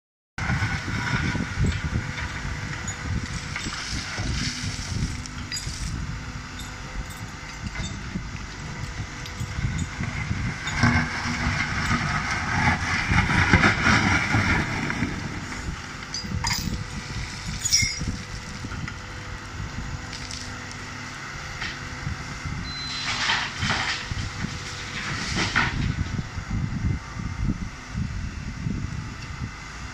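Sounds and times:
diesel engines rumbling: 0.4s - 29.9s
excavator bucket scraping stone: 2.8s - 6.0s, 9.4s - 18.4s, 22.8s - 26.0s.

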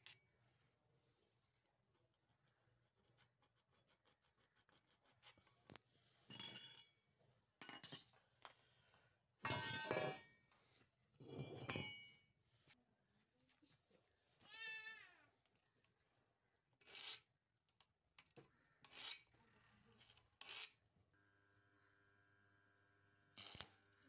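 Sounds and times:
steel vise clinking and scraping: 9.4s - 10.3s, 11.2s - 12.2s.

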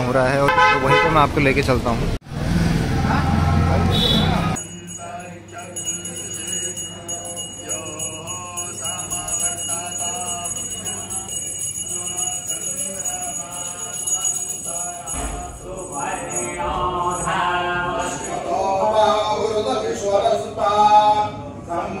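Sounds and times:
group devotional singing: 4.5s - 22.0s
hand bell ringing: 4.6s - 18.5s.

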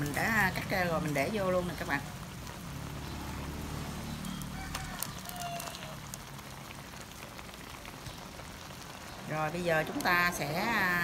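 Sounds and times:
liquid bubbling in pan: 0.0s - 11.0s.

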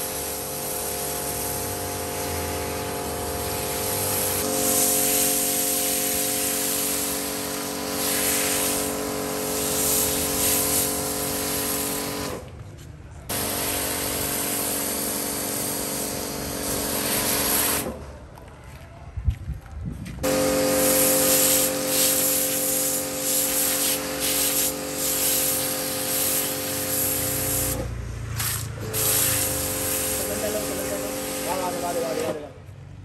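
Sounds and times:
foam spraying hiss: 0.0s - 12.3s, 20.2s - 32.4s
pressure washer motor hum: 0.0s - 12.5s, 13.3s - 18.1s, 20.2s - 32.5s.

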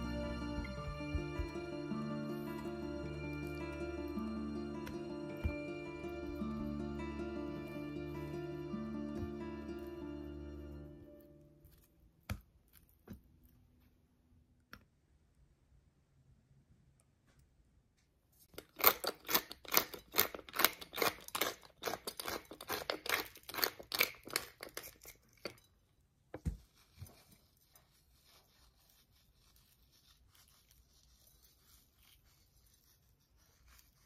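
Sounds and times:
spice grinder crunchy grinding: 0.0s - 10.0s, 18.5s - 25.8s, 26.4s - 34.0s.

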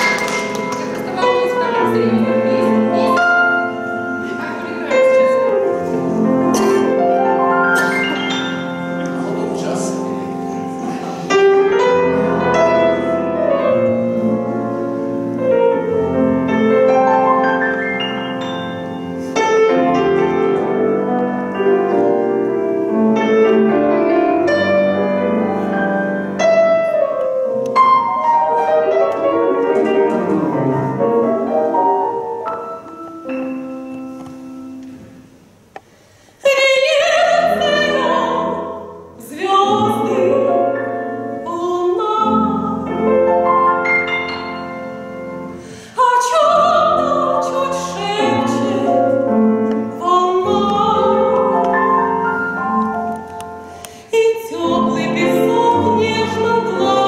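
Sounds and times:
piano and double bass: 0.0s - 57.0s
soprano singing with vibrato: 36.4s - 43.1s, 45.9s - 49.1s, 49.8s - 51.7s, 54.1s - 57.0s.

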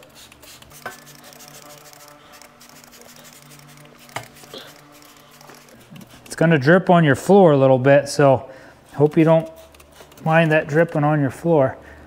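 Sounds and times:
spray bottle hissing: 0.0s - 6.4s, 8.9s - 10.3s
steady low hum: 0.0s - 12.0s.

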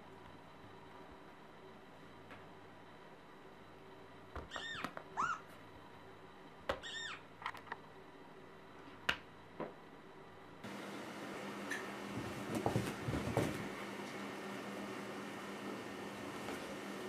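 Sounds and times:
cat mewing: 4.5s - 5.5s.

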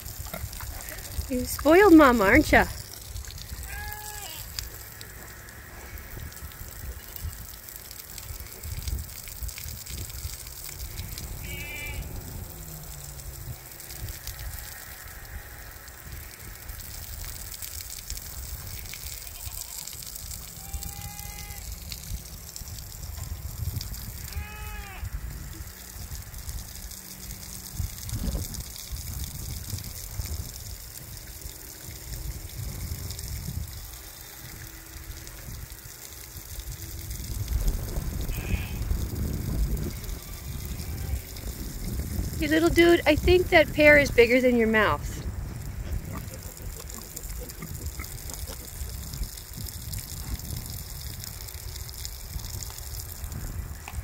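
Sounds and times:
pig sloshing in mud: 0.0s - 20.8s, 45.2s - 53.4s.

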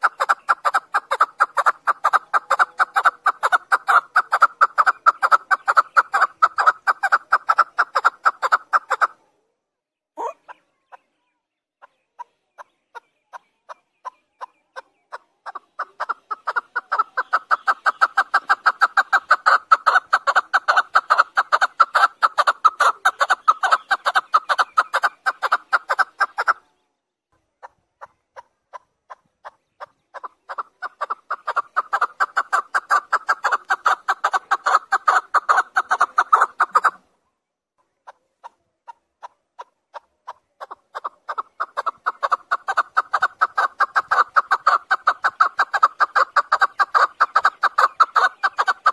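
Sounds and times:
partridge calling chuck notes: 15.5s - 26.6s, 29.8s - 37.1s, 40.6s - 48.9s.

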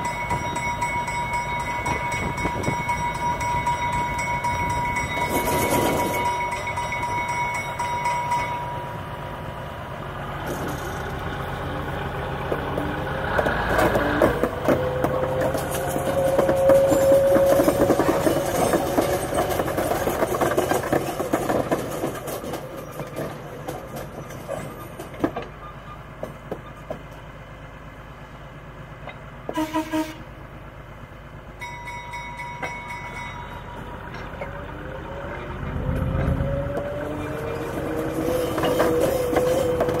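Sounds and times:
clattering train wheels: 0.0s - 9.4s, 10.3s - 27.7s, 31.5s - 40.0s
diesel locomotive engine running: 0.0s - 40.0s
train horn toot: 14.8s - 18.3s, 29.5s - 30.3s.

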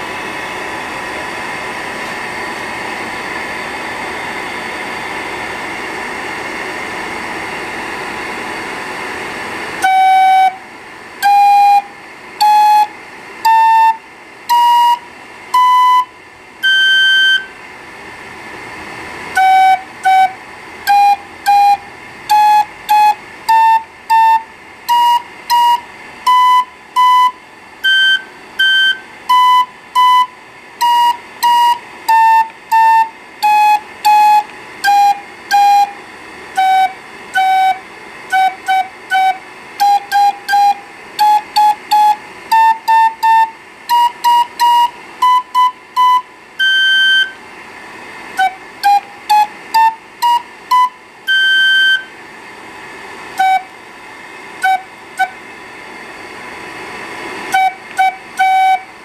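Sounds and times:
steady background hiss: 0.0s - 59.0s.

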